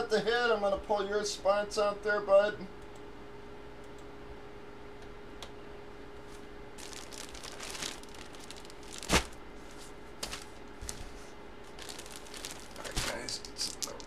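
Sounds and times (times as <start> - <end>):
steady faint hum: 0.0 - 14.0
plastic bag crinkling: 6.8 - 14.0.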